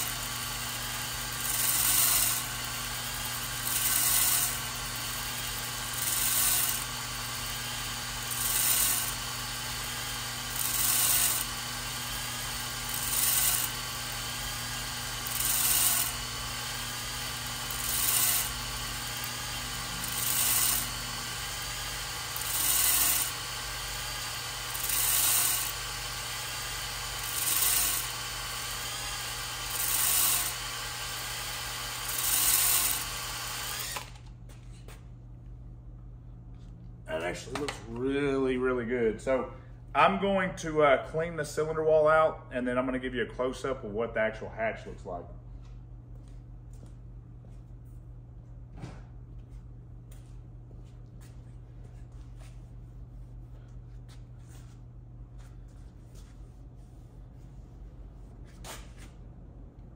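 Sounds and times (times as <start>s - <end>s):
electric drill running: 0.0s - 34.4s.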